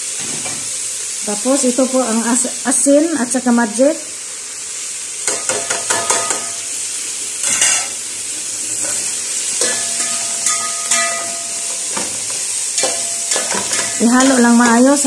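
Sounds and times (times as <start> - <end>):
shrimp sizzling in a pot: 0.0 - 15.0
spoon scraping and clinking pot: 7.4 - 7.9, 9.6 - 14.8.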